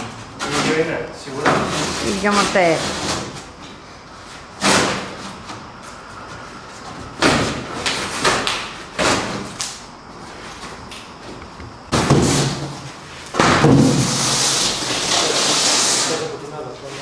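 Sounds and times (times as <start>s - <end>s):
cardboard thumping and scraping: 10.4s - 16.0s
cardboard hissing scrape and rustle: 11.9s - 17.0s.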